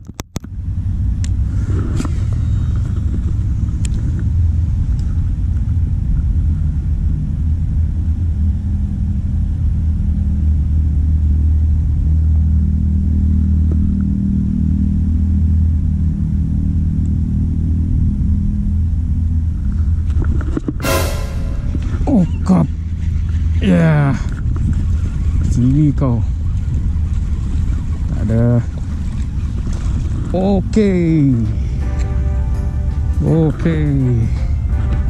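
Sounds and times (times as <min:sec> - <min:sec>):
engine idling rumble: 0:00.4 - 0:20.1.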